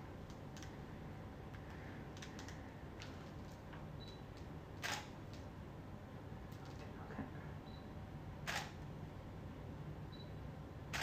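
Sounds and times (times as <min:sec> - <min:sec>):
camera shutter click: 0:04.8 - 0:05.1, 0:08.5 - 0:08.8.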